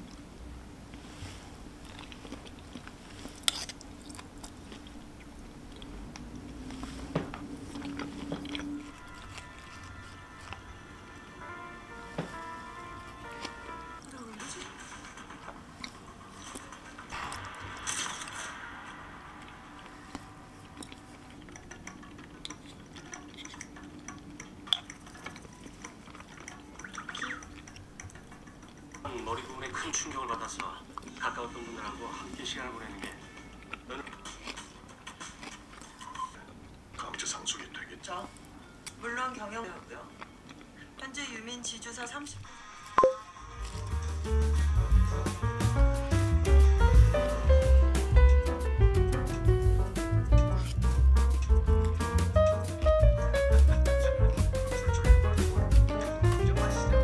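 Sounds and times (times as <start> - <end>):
chewing food: 0.9 - 11.0, 13.0 - 17.6, 19.4 - 39.0, 39.6 - 41.0, 50.2 - 56.8.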